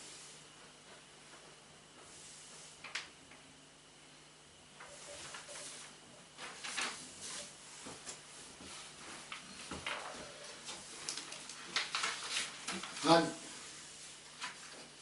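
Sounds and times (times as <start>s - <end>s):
faint steady hum: 0.0s - 15.0s
soft knocks and rustles: 6.4s - 13.0s.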